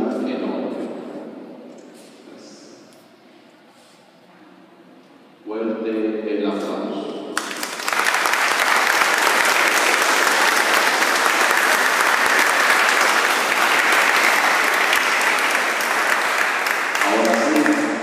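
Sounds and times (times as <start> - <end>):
crowd applauding: 7.4 - 18.0.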